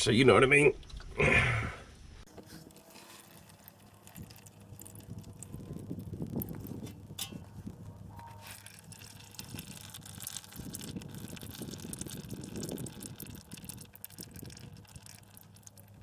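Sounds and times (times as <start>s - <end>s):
oil trickling into metal pan: 2.5s - 16.0s.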